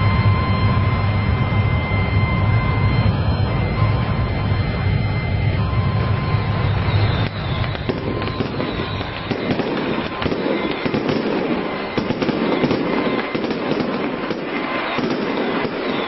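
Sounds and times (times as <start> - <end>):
firecrackers popping: 7.3 - 16.0.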